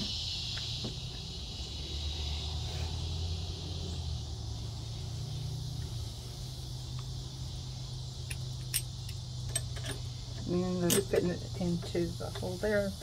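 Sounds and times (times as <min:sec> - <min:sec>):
crickets chirping: 0:00.0 - 0:13.0
light metallic clicks: 0:08.2 - 0:11.4.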